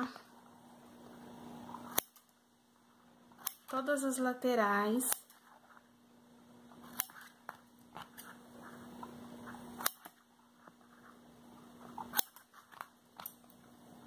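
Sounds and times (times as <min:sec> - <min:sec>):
faint low hum: 0:00.0 - 0:14.0
scissor blades ticking: 0:01.8 - 0:02.3, 0:03.4 - 0:03.9, 0:09.8 - 0:10.2, 0:12.0 - 0:12.5
scissors snipping paper: 0:06.8 - 0:07.4.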